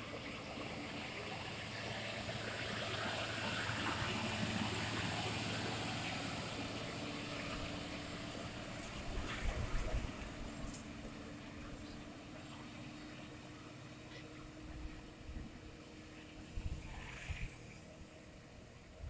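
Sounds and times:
truck diesel engine passing: 0.0s - 19.0s.

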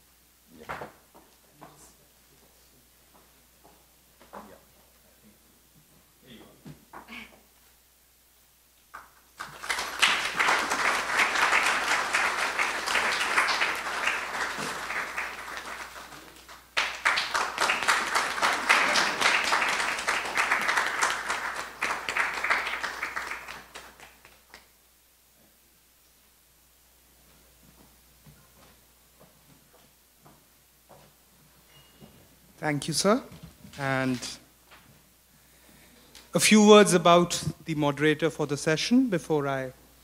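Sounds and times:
audience applauding: 9.4s - 24.7s.

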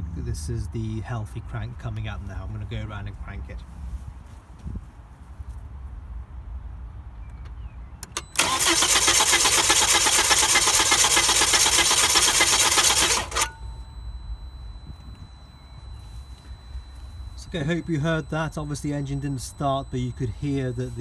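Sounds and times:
clicks: 7.3s - 8.6s
car engine cranking on starter: 8.0s - 15.2s.

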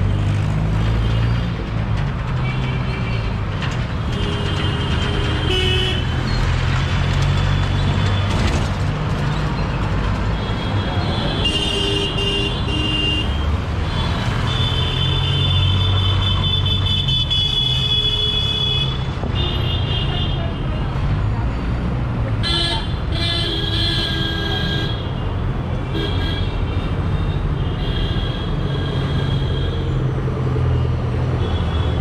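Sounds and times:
traffic engines rumbling: 0.0s - 32.0s
vehicle horns tooting: 10.5s - 20.5s.

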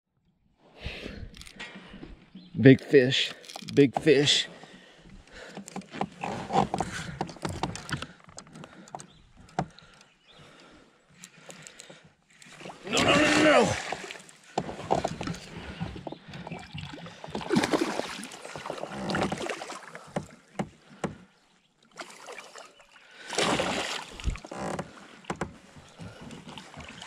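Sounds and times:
handling knocks and clicks: 5.1s - 10.1s.

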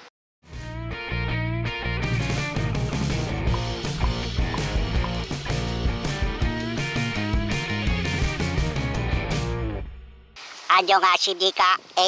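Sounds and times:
upbeat rock music: 0.5s - 10.1s
guitar line bending in pitch: 0.8s - 8.4s.

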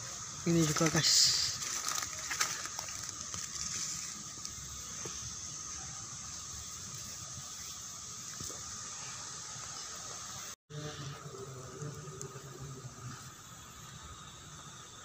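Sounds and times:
high-pitched insect drone: 0.0s - 15.0s
leaf litter rustling: 0.4s - 5.2s.

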